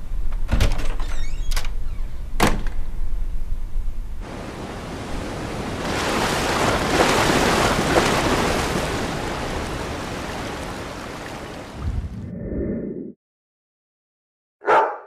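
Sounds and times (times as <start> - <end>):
ocean surf washing onto beach: 4.2 - 12.2.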